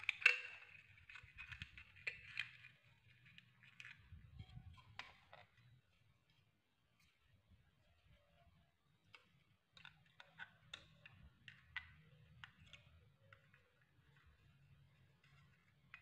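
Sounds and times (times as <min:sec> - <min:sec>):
plastic toy parts clicking: 0:00.0 - 0:04.1.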